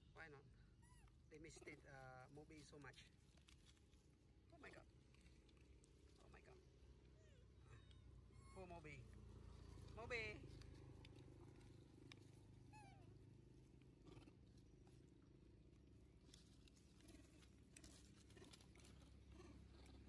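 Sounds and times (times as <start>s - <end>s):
low steady rumble: 0.0s - 20.0s
young macaque squeak: 0.8s - 1.2s, 7.3s - 8.9s, 12.7s - 13.1s
faint ticks: 10.5s - 12.5s.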